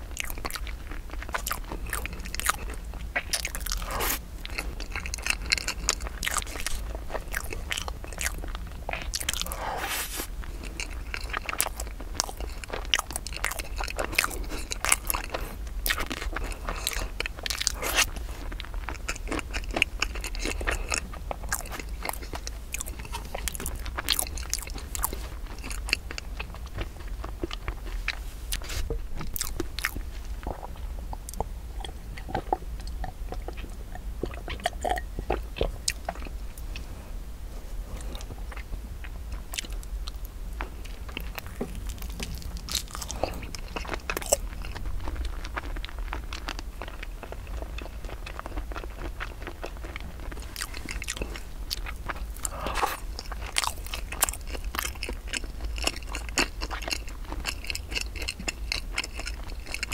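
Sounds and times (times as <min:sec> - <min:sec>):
chewing crumbly rice cake: 0:00.0 - 0:59.9.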